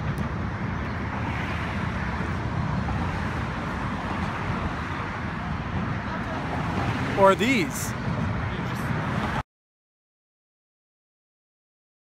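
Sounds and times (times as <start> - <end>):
road traffic rumble: 0.0 - 9.4.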